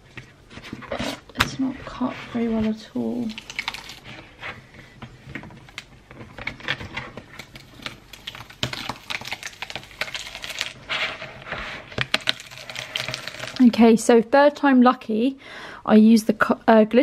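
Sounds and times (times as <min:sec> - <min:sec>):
paper rustling and crackling: 0:02.1 - 0:13.7.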